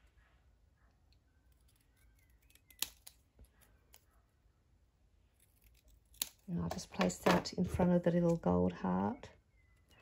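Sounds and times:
scissors snipping paper: 0:01.5 - 0:04.1, 0:05.3 - 0:07.4.

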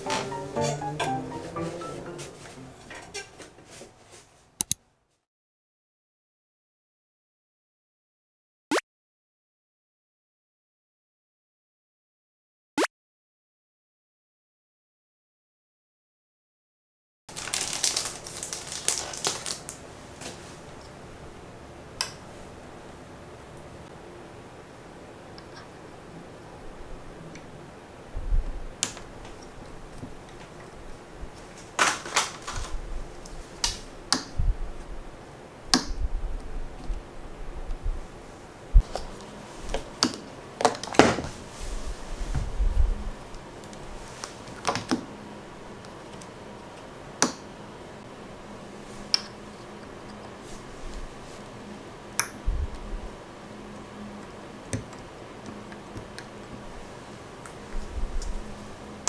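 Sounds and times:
faint steady hum: 0:17.3 - 0:59.0.

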